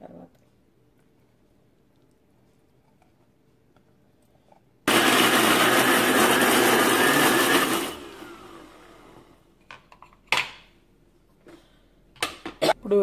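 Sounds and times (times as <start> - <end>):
mixer grinder motor running: 4.9 - 9.4.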